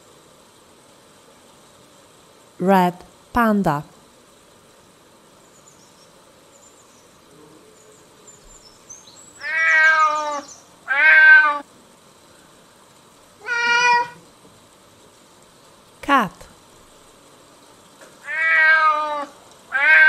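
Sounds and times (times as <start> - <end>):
cat meowing: 9.4 - 11.7, 13.4 - 14.2, 18.2 - 20.0.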